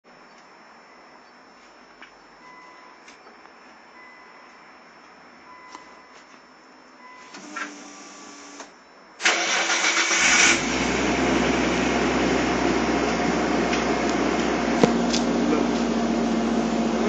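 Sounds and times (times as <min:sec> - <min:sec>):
starter motor cranking: 0:07.4 - 0:11.4
car engine idling: 0:09.3 - 0:17.0.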